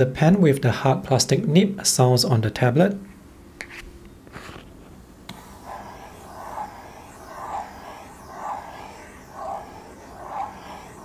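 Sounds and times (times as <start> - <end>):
pen scratching on tablet: 5.3 - 11.0.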